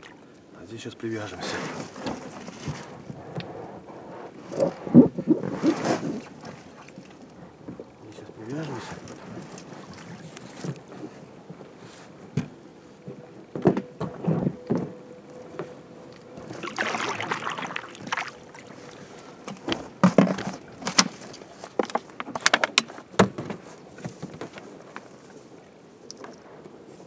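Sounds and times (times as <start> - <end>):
rope rustling and rubbing: 1.5 - 6.5
knocks and clicks on boat: 12.3 - 15.8, 19.4 - 24.7.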